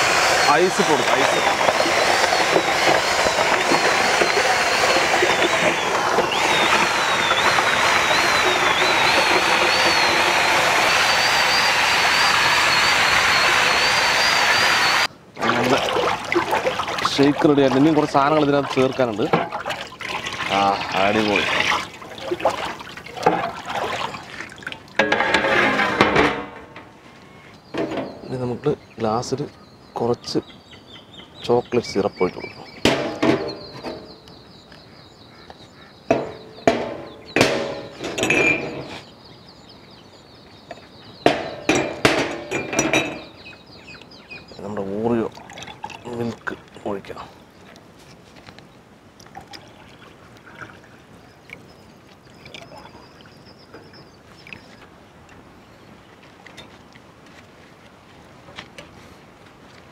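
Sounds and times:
paddle mixer motor whine: 0:00.0 - 0:19.0, 0:20.0 - 0:28.0
milkshake and ice churning: 0:00.0 - 0:26.2, 0:44.4 - 0:47.2
glass mugs clinking: 0:37.4 - 0:38.8, 0:41.3 - 0:43.4.

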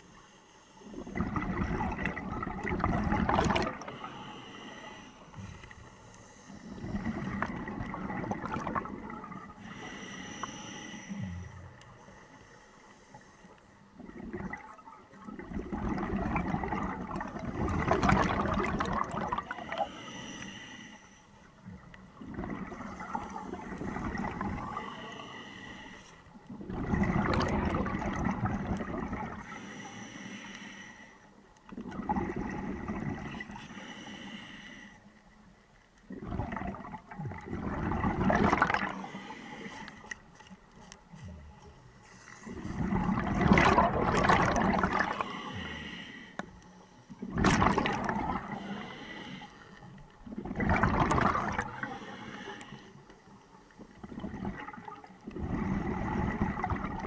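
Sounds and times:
regulator hissing inhale: 0:00.0 - 0:01.2, 0:03.9 - 0:07.1, 0:09.6 - 0:13.8, 0:19.6 - 0:21.5, 0:24.7 - 0:26.4, 0:29.4 - 0:31.4, 0:33.2 - 0:35.2, 0:38.9 - 0:40.2, 0:45.1 - 0:47.2, 0:48.5 - 0:50.0, 0:51.8 - 0:53.4
rush of exhaled bubbles: 0:00.9 - 0:04.5, 0:06.6 - 0:10.0, 0:14.0 - 0:20.1, 0:21.7 - 0:25.4, 0:26.5 - 0:29.6, 0:31.7 - 0:33.6, 0:36.1 - 0:39.8, 0:42.4 - 0:45.9, 0:47.2 - 0:49.2, 0:50.2 - 0:52.5, 0:53.9 - 0:57.0.

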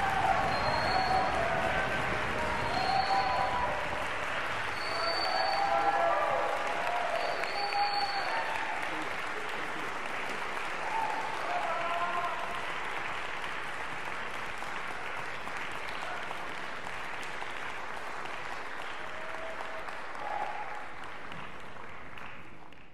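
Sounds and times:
brief cheers: 0:00.0 - 0:09.1, 0:10.8 - 0:12.6, 0:18.9 - 0:20.9
audience applauding: 0:00.0 - 0:22.9.

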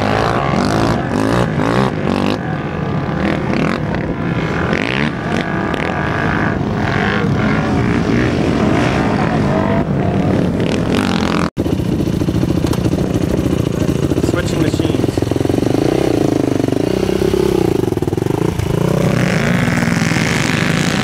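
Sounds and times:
quad engines revving hard: 0:00.0 - 0:21.0.

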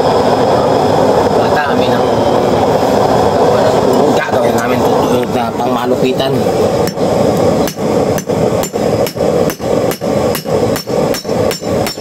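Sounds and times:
steady hum: 0:00.0 - 0:12.0
hammer beating metal shaft: 0:07.6 - 0:12.0.

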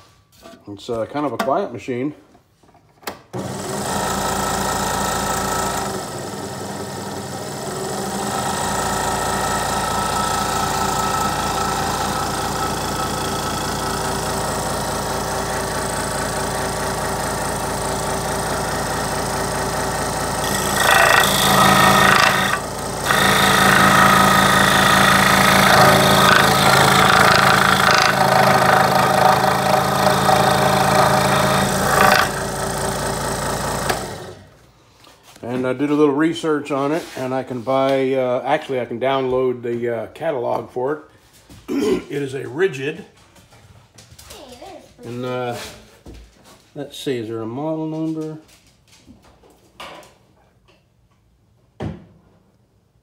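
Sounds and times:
scroll saw running: 0:03.4 - 0:34.5
saw blade cutting wood: 0:19.7 - 0:34.4.

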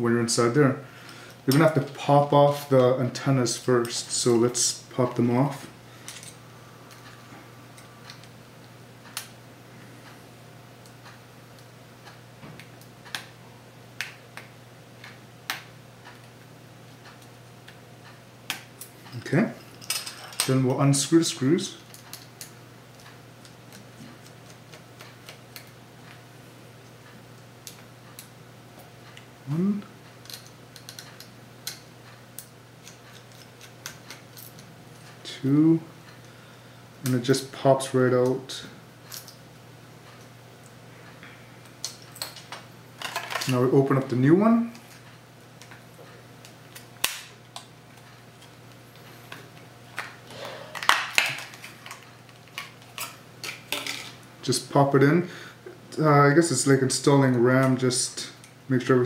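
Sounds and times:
plastic packaging snapping: 0:50.8 - 0:54.1.

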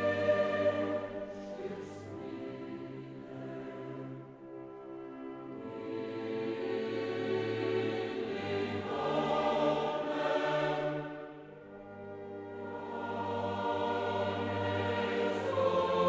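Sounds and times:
choir singing held chords: 0:00.0 - 0:16.0
orchestra playing: 0:07.7 - 0:16.0.

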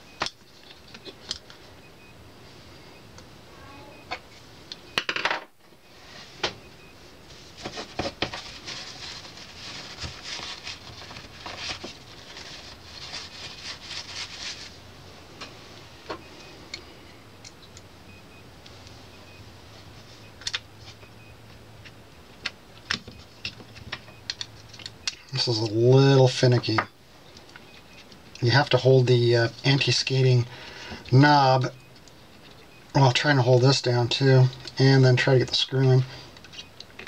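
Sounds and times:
rustling: 0:07.2 - 0:16.1.

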